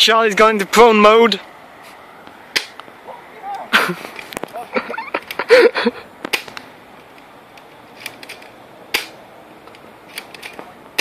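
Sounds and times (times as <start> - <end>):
person yelling: 3.0 - 3.8
bb gun firing clicks: 8.1 - 9.2.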